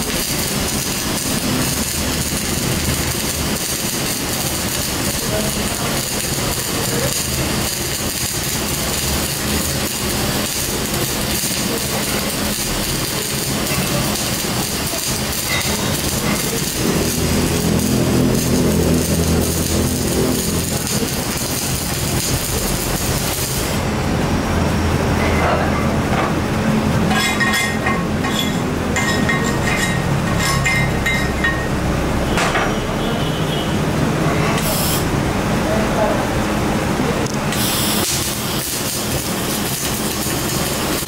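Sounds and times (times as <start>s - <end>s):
arc welding crackling: 0.0s - 32.4s, 34.6s - 35.2s, 37.1s - 41.0s
machinery hum: 0.0s - 37.2s.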